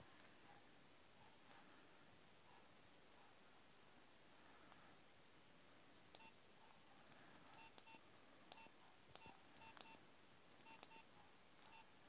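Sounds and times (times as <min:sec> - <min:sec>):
short keypad beeps: 0:10.6 - 0:11.0, 0:11.7 - 0:11.9.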